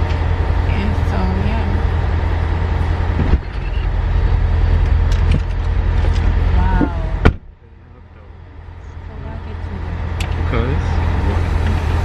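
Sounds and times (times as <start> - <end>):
vehicle engines idling: 0.0 - 12.0
car door shutting: 3.2 - 3.9, 7.2 - 7.5.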